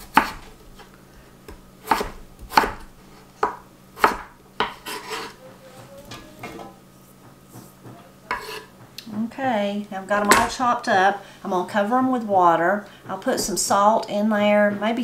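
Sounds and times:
knife chopping on wooden board: 0:00.0 - 0:00.5, 0:01.5 - 0:05.3, 0:07.2 - 0:09.0
knife scraping pieces off board: 0:04.0 - 0:05.4, 0:08.3 - 0:08.7.

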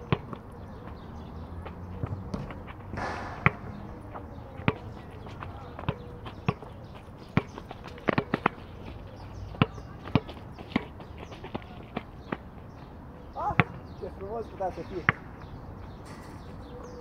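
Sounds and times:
basketball bouncing: 0:00.0 - 0:00.4, 0:02.0 - 0:05.0.

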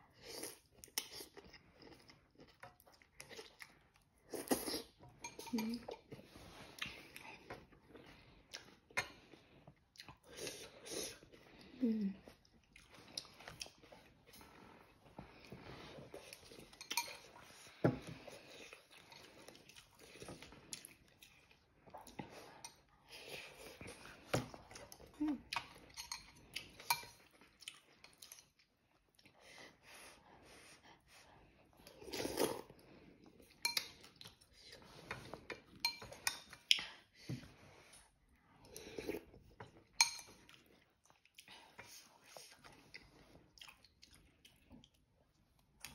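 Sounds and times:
chewing noodles: 0:00.1 - 0:29.8, 0:37.8 - 0:45.9
utensils clinking on bowl: 0:05.2 - 0:06.0, 0:16.4 - 0:17.8.

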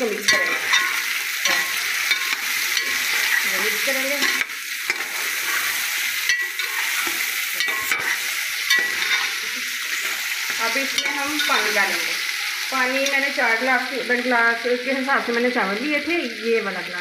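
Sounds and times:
chicken sizzling in oil: 0:00.0 - 0:17.0
metal spoon scraping pot: 0:00.3 - 0:10.2.

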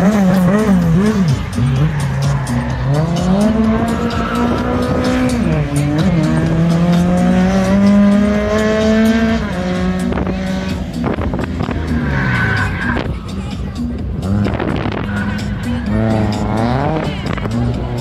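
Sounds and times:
race car engine revving: 0:00.0 - 0:18.0.

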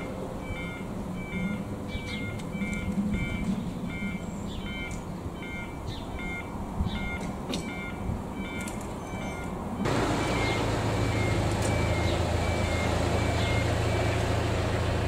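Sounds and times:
level crossing alarm beeping: 0:00.0 - 0:14.7.

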